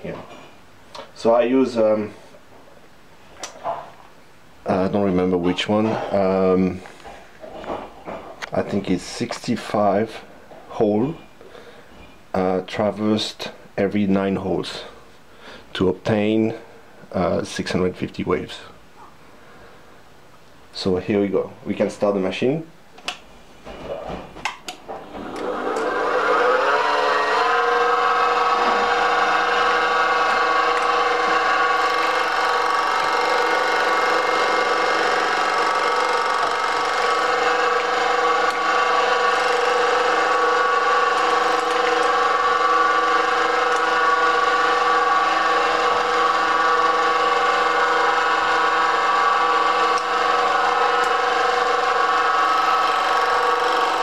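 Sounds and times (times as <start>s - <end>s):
milling machine motor whine: 25.2s - 54.0s.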